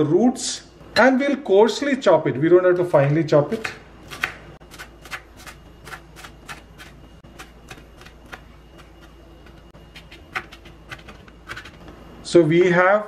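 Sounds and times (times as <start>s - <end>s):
knife chopping on wooden board: 3.6s - 9.2s.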